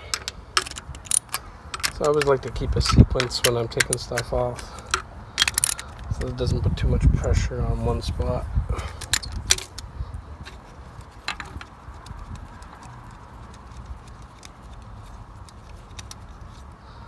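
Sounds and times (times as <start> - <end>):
wrench clicking and knocking: 0.0 - 6.0, 11.2 - 14.6
steady low rumble: 0.0 - 17.0.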